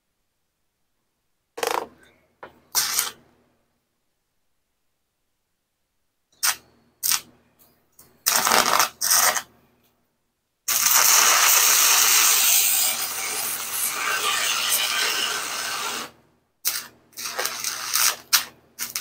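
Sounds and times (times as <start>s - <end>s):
welding arc crackling: 8.3s - 9.4s, 10.7s - 19.0s.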